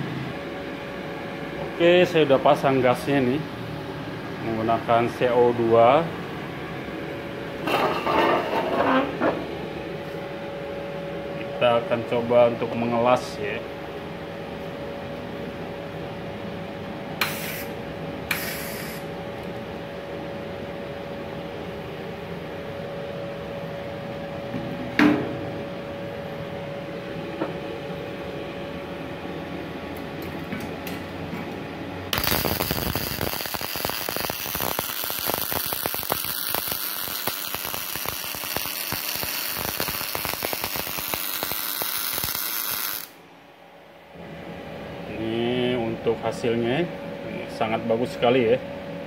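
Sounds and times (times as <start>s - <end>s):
steady hum with held tone: 0.0s - 49.0s
welding arc crackling: 32.1s - 43.2s.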